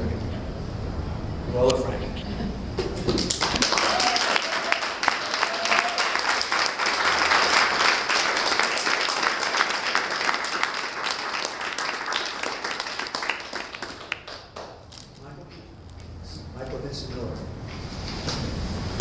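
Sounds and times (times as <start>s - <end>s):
audience clapping: 2.8s - 15.2s.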